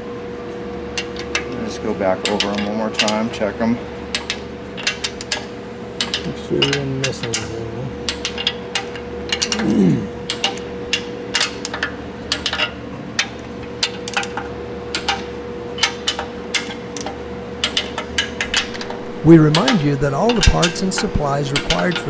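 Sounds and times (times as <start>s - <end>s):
faint steady hum: 0.0s - 22.0s
torque wrench clicking: 10.3s - 22.0s.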